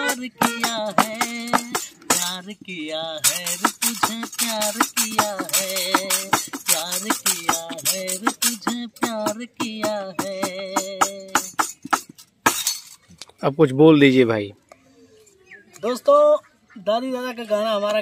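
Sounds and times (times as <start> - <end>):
harmonium chords: 0.0 - 2.1
tambourine jingling: 0.0 - 2.6, 3.2 - 13.1
person singing ornamented lines: 0.0 - 11.9.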